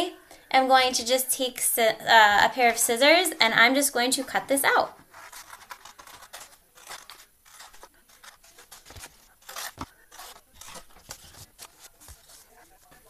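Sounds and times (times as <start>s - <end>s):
scissors snipping stiff paper: 5.1s - 13.0s.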